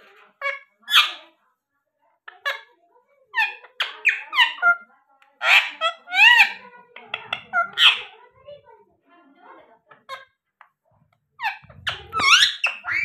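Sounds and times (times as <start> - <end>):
parakeets squawking: 0.1 - 1.4, 3.3 - 8.3, 11.4 - 13.0.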